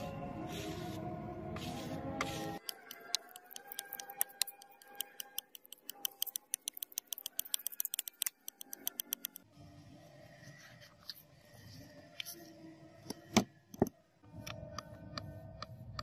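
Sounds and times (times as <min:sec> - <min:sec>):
sandpaper sheet rustling: 0:00.0 - 0:02.6
knife blade scratching on wet sandpaper: 0:00.5 - 0:08.8.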